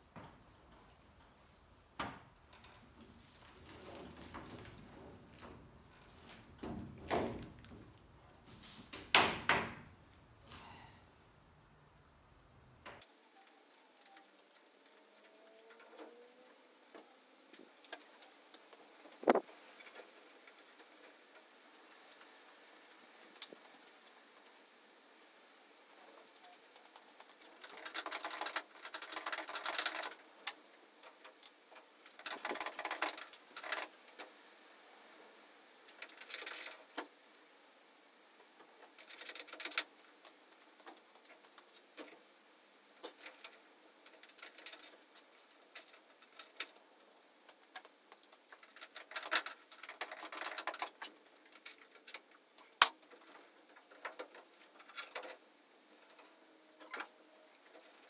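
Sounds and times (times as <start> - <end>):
plastic canopy rustling and scraping: 2.6 - 9.1, 18.4 - 23.7.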